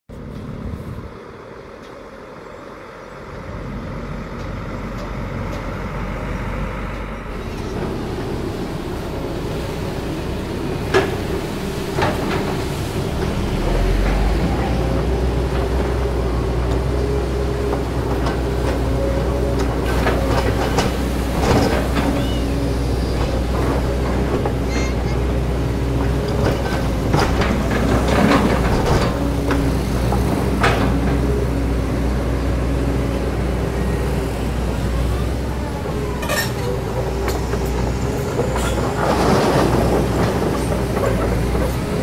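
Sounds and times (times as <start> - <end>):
excavator diesel engine running: 0.1 - 42.0
bucket clanks and scrapes: 36.1 - 36.8.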